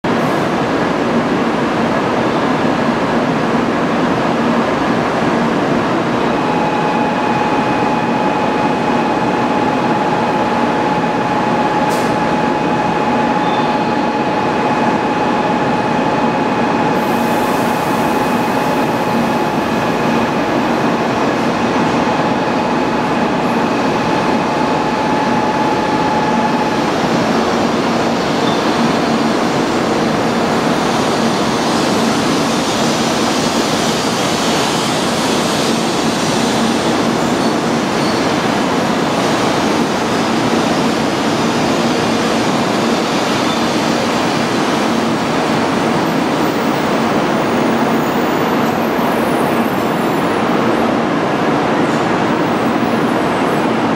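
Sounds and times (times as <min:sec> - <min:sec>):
electric train rumbling past: 0:00.1 - 0:53.9
steady high tone: 0:06.2 - 0:31.2.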